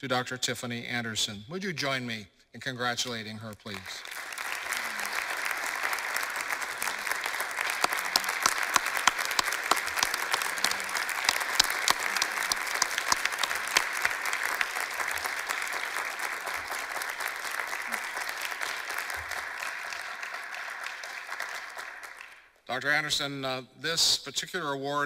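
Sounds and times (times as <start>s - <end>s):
audience applauding: 3.6s - 22.6s
sharp single claps: 7.6s - 14.7s.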